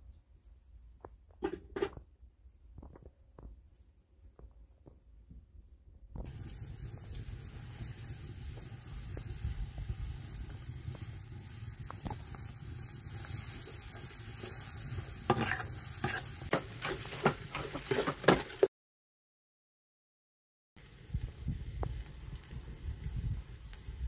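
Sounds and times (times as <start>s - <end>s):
onions sizzling in oil: 6.2s - 18.7s, 20.8s - 24.0s
metal spoon scraping a pot: 15.3s - 18.7s.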